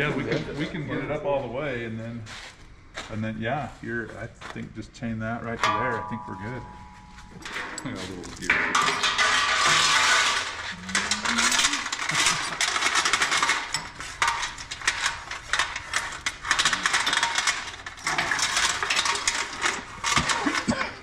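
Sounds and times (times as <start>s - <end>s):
metal chain rattling: 5.8s - 21.0s.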